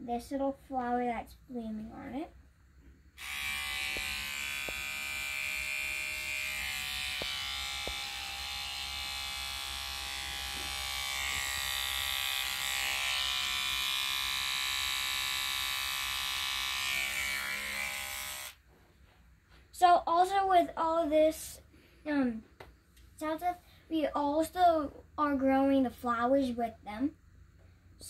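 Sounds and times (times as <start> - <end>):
electric toothbrush buzzing: 3.2 - 18.7.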